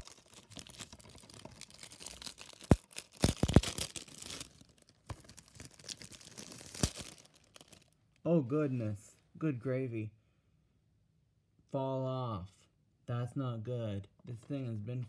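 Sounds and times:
plastic wrap crinkling and tearing: 0.0s - 8.0s.

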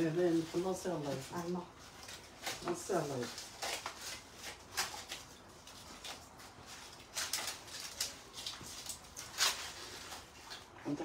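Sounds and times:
flatbread tearing by hand: 1.9s - 10.7s.

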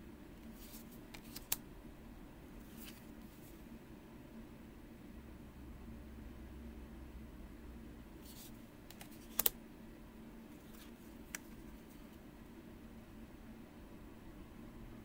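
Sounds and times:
cards sliding swish: 0.5s - 1.6s, 2.6s - 3.6s, 8.2s - 9.6s
card edges tapping: 1.1s - 1.6s, 8.9s - 9.5s.

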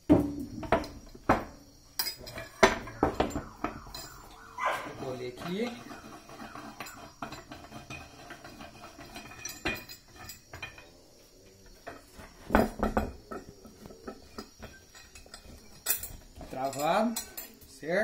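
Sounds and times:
metal clamp clinking: 2.0s - 4.9s, 6.0s - 10.8s, 13.3s - 17.8s.

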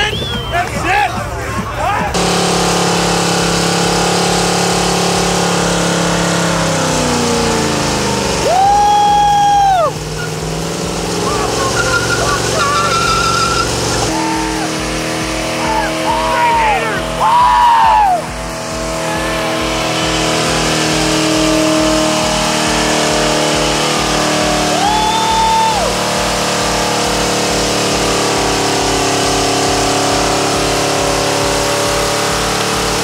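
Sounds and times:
tyres spinning: 0.0s - 33.0s
car engine at high revs: 1.6s - 33.0s
man yelling loudly: 15.6s - 18.2s.

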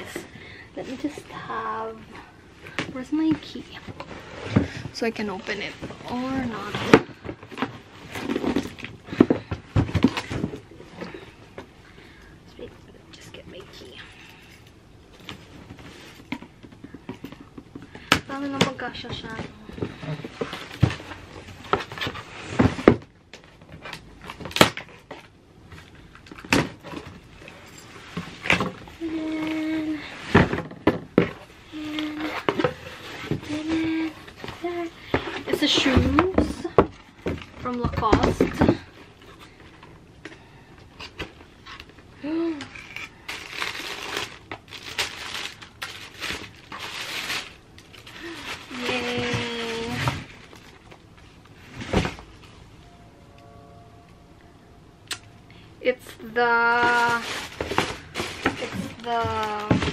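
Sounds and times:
rustling of cardboard flaps and tape: 0.0s - 11.7s, 15.2s - 52.7s, 56.1s - 59.9s
tissue paper crinkling: 42.8s - 50.9s, 56.5s - 59.7s.

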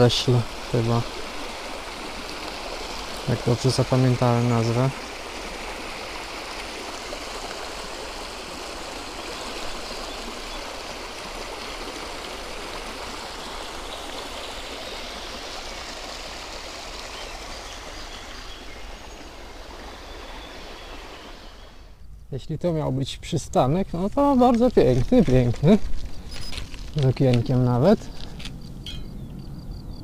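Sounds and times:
bike tyres rolling on asphalt: 24.0s - 28.7s.

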